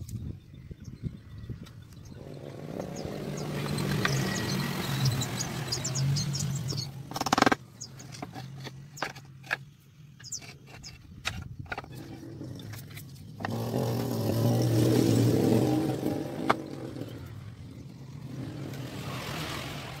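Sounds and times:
low engine-like hum: 0:01.3 - 0:09.0, 0:11.9 - 0:20.0.

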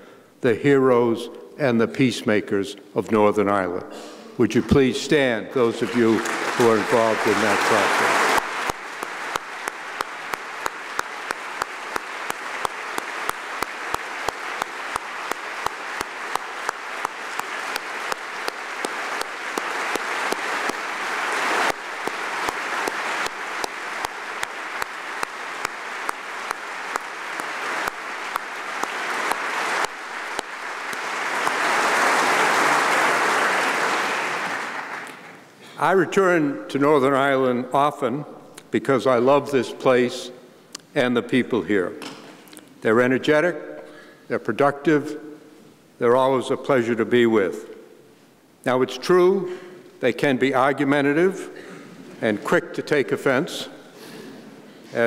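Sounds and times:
audience applause: 0:05.8 - 0:35.4
close hand claps: 0:05.8 - 0:35.4.

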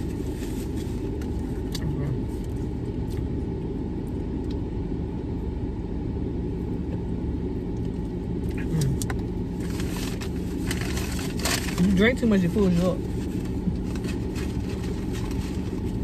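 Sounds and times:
car engine idling: 0:00.0 - 0:16.0
paper wrapper rustling: 0:09.6 - 0:16.0.

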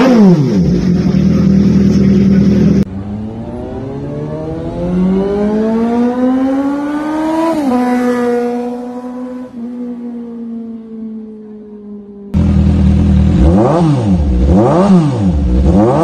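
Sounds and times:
motorcycle engine at high revs: 0:00.0 - 0:10.2, 0:12.4 - 0:16.0
synthesized rising tone: 0:00.0 - 0:11.0.

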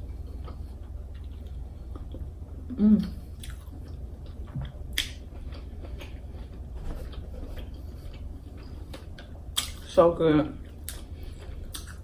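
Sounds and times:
low steady hum: 0:00.0 - 0:12.0
chewing and wet mouth clicks: 0:03.4 - 0:09.9, 0:10.7 - 0:11.1, 0:11.7 - 0:12.0.

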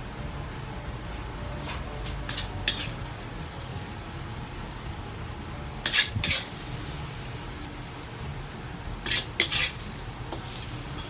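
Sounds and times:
metal ladle scraping a wok: 0:02.3 - 0:03.1, 0:05.8 - 0:06.7, 0:09.0 - 0:11.0.

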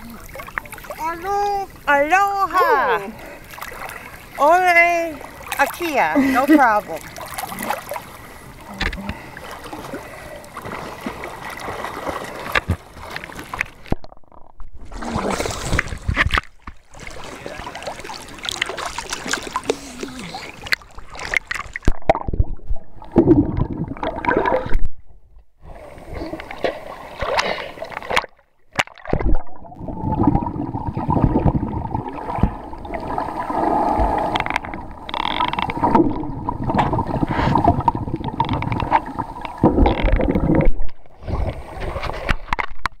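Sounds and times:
seawater sloshing and splashing: 0:00.0 - 0:01.9, 0:02.6 - 0:14.0, 0:14.8 - 0:22.4.

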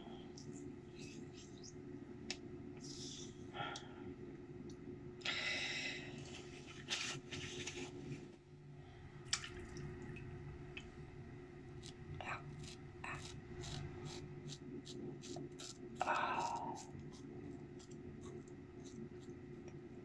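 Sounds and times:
steady low hum: 0:00.0 - 0:20.0
small wet clicks and squishes: 0:09.3 - 0:10.9
razor scraping over stubble: 0:11.8 - 0:19.4.

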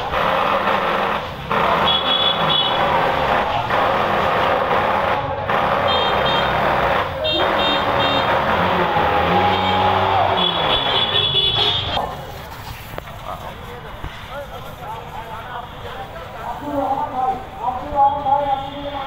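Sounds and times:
loud mechanical din: 0:00.0 - 0:12.0.

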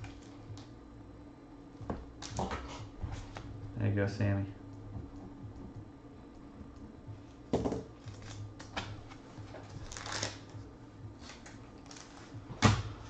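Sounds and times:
card and paper rustle: 0:09.1 - 0:10.5.

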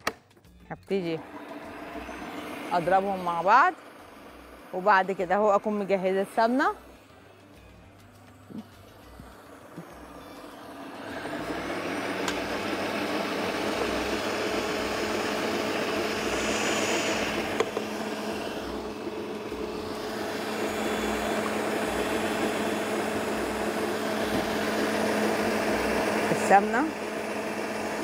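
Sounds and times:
stand mixer motor whisking: 0:01.2 - 0:06.8, 0:09.2 - 0:28.0.

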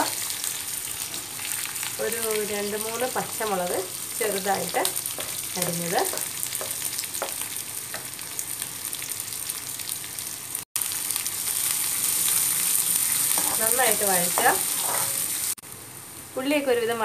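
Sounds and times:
food sizzling in hot oil: 0:00.0 - 0:17.0
spatula scraping pan: 0:14.4 - 0:15.3.

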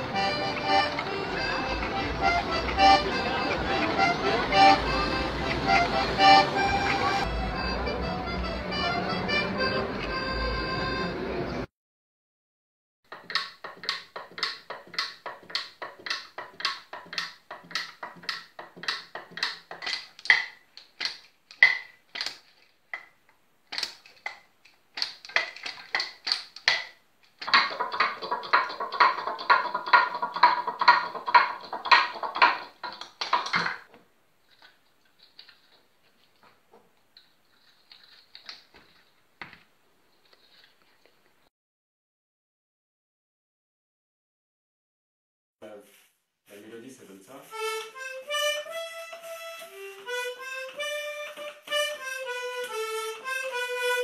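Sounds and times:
wooden toys clacking: 0:13.1 - 0:39.6.

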